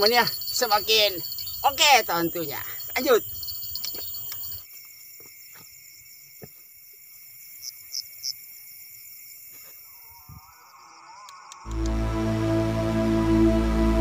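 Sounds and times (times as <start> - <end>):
crickets trilling: 0.0 - 11.7.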